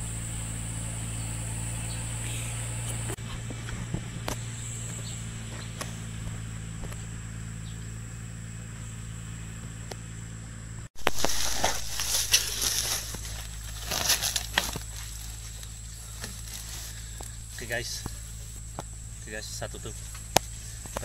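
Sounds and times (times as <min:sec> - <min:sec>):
steady low hum: 0:00.0 - 0:21.0
plastic bag handled: 0:11.0 - 0:17.0
leaves rustling and crinkling: 0:11.0 - 0:21.0.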